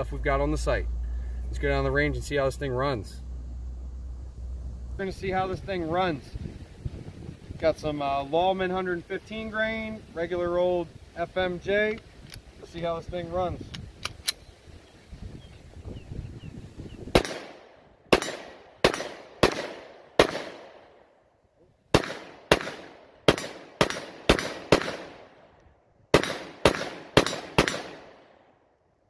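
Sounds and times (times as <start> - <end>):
pistol shots echoing: 17.2 - 20.8, 21.9 - 25.4, 26.1 - 28.3.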